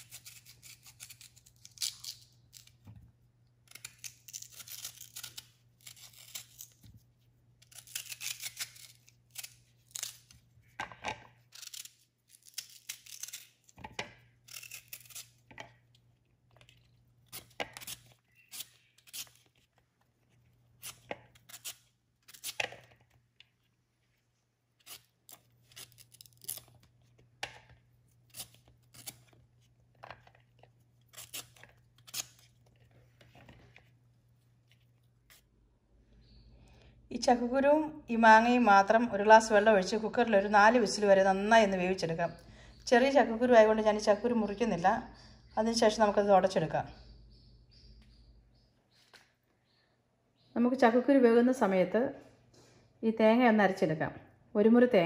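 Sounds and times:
knife scraping and slicing mango: 0.0s - 2.7s, 3.7s - 15.8s, 16.6s - 23.0s.

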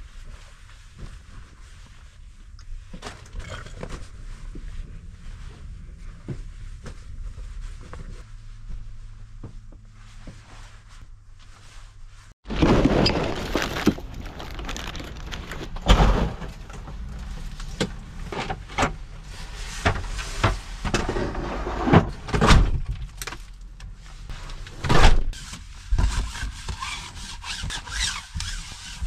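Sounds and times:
rustling of belongings: 0.0s - 20.8s.

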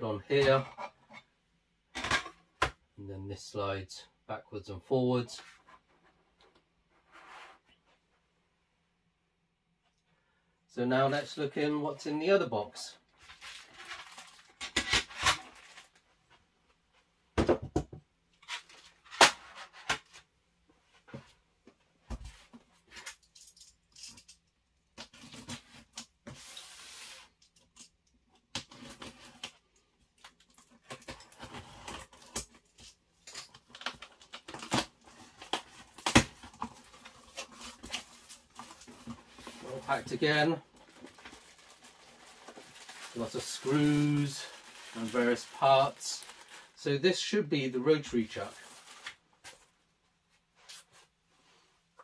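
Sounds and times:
cardboard rustling and scraping: 33.5s - 46.6s.

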